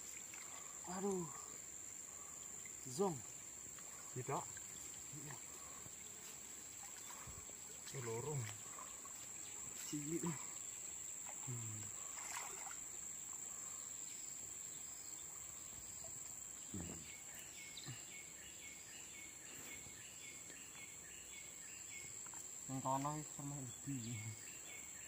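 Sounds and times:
high-pitched insect drone: 0:00.0 - 0:18.1
stream: 0:00.0 - 0:25.0.

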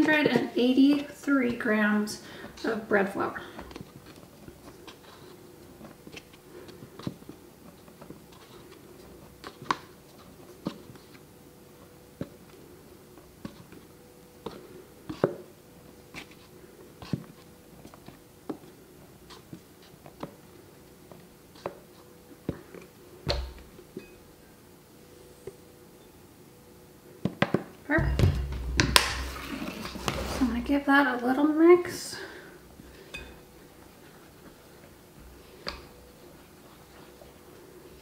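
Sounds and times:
faint steady hum: 0:00.0 - 0:38.0
canister thump: 0:28.0 - 0:30.3.

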